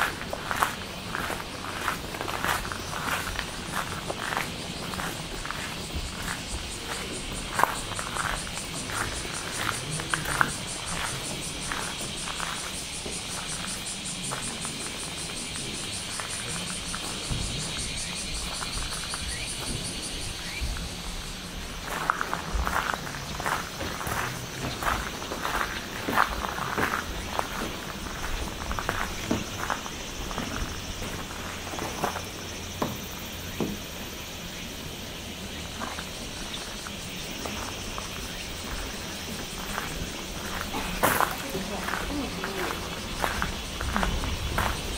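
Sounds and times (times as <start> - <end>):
insects trilling in chorus: 0.0 - 44.9.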